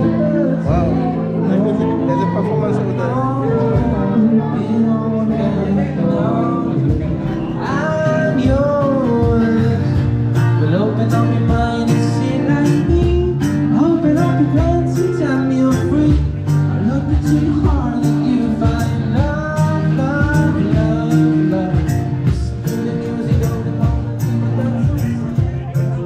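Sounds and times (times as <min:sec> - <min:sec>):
acoustic guitar: 0:00.0 - 0:26.0
man singing: 0:00.0 - 0:26.0
steady drum beat: 0:06.8 - 0:26.0.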